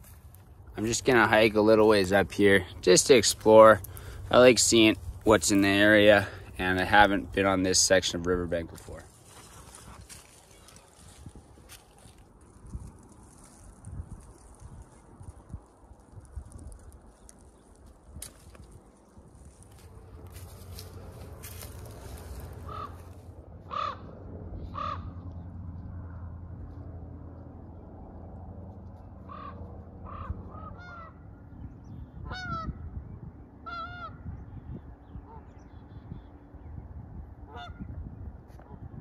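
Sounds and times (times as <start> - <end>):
footsteps through dry brush: 0.0 - 7.4, 8.4 - 23.9
goose honking: 22.6 - 23.1, 29.3 - 31.2, 33.6 - 34.2, 37.5 - 37.8.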